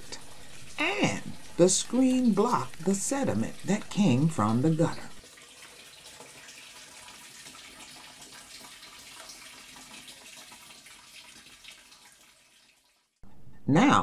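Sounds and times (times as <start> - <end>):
water trickling and splashing: 0.0 - 13.2.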